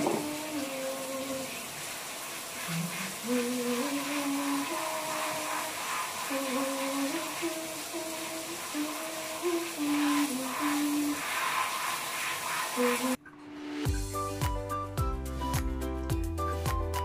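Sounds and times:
steady hiss: 0.0s - 13.2s
person humming a slow tune: 6.3s - 11.1s.

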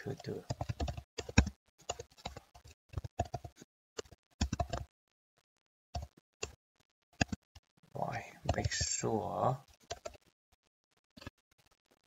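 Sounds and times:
computer keyboard typing: 0.0s - 4.9s, 6.0s - 6.6s, 7.2s - 7.5s, 8.4s - 9.0s, 9.8s - 10.2s.

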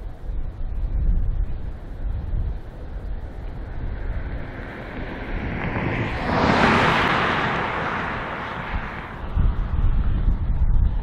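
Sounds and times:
wind buffeting microphone: 0.0s - 11.0s
jet engines roaring: 2.6s - 9.8s.

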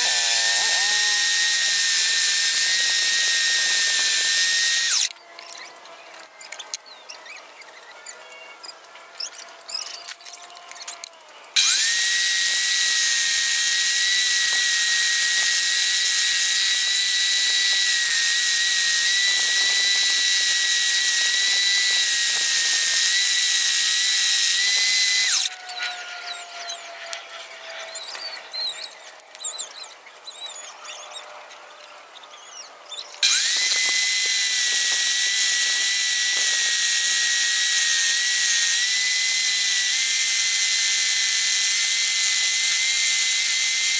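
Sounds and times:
scroll saw whining: 0.0s - 43.9s
small clicks and handling noise: 4.8s - 11.7s, 25.3s - 30.0s.

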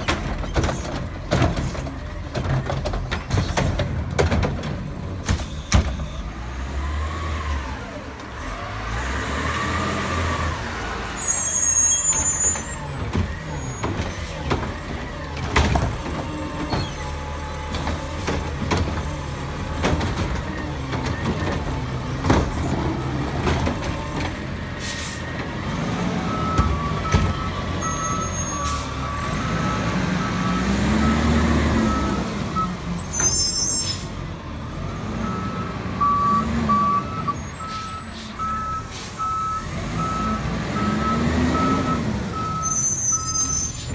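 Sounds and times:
garbage truck engine revving: 6.3s - 11.4s, 12.0s - 33.0s, 39.1s - 42.6s.

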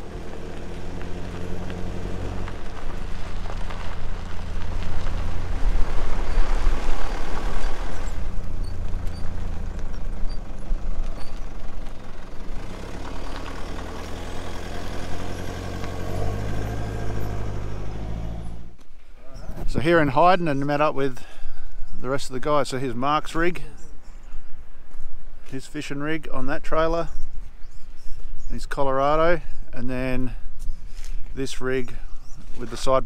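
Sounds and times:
vehicle engine running: 0.0s - 18.8s.

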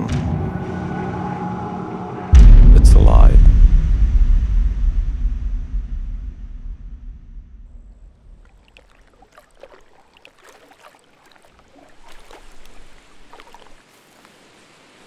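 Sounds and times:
low rumble: 0.0s - 8.6s
water drops splashing: 7.8s - 13.8s.

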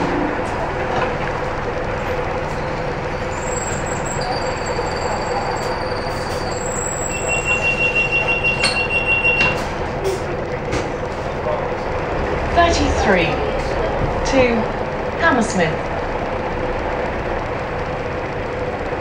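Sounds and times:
bus engine and road rumble: 0.0s - 19.0s
constant hum: 9.4s - 19.0s.

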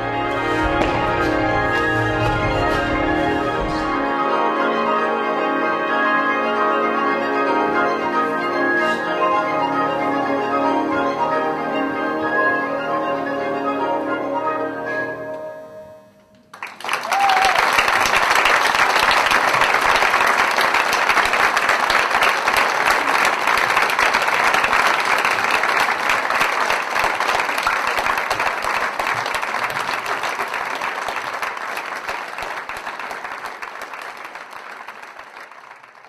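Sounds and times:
audience applauding: 0.0s - 4.2s, 16.5s - 36.0s.

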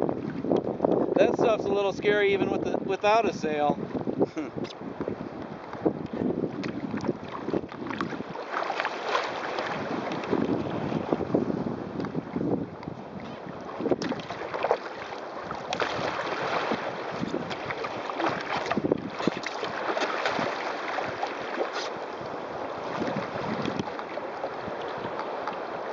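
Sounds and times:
water splashing against kayak hull: 0.0s - 25.9s
wind buffeting microphone: 0.0s - 25.9s.

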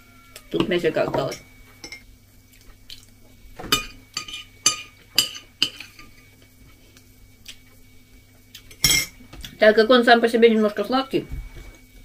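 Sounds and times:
metal spoon clinking on crockery: 3.8s - 6.1s, 8.7s - 9.1s.

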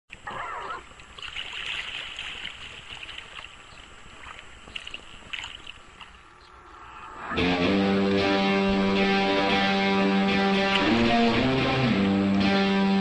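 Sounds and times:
water swishing and splashing: 0.1s - 7.4s, 10.3s - 12.2s.

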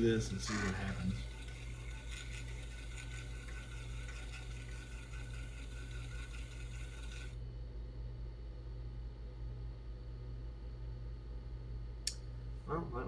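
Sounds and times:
floppy drive whirring: 0.0s - 7.4s
computer fan hum: 0.0s - 13.0s.

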